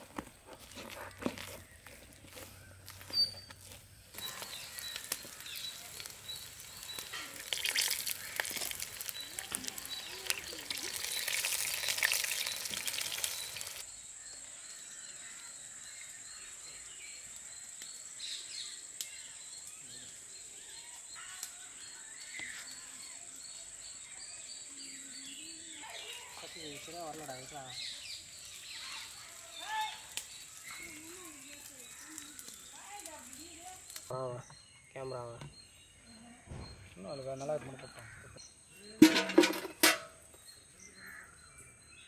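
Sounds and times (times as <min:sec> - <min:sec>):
faint bird chirps: 0:01.1 - 0:39.0
batter frying in hot oil: 0:03.6 - 0:13.8, 0:26.3 - 0:34.1.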